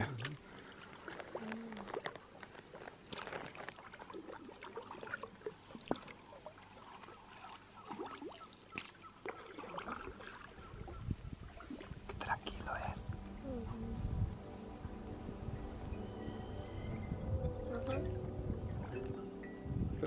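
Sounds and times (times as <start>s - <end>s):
paddle splashing in water: 0.0s - 12.2s.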